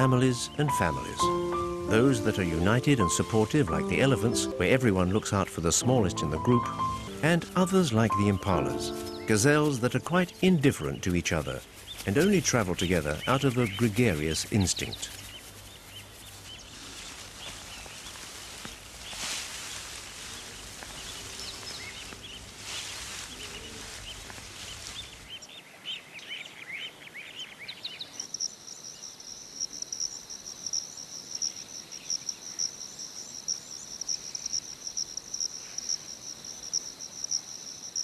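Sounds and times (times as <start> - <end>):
birds chirping: 0.0 - 38.0
high-pitched insect trill: 28.2 - 38.0.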